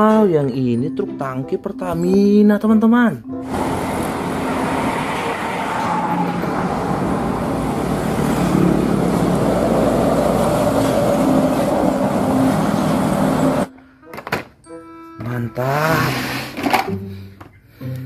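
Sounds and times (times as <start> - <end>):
cars passing: 3.4 - 13.7
motorbikes passing: 3.4 - 13.7
truck diesel engine passing: 3.4 - 13.7.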